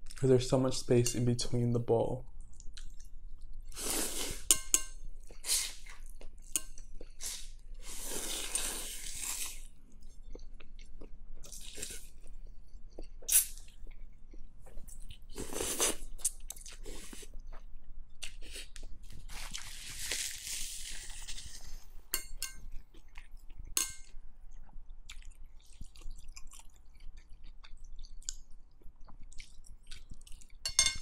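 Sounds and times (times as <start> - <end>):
wet chewing: 10.2 - 30.6.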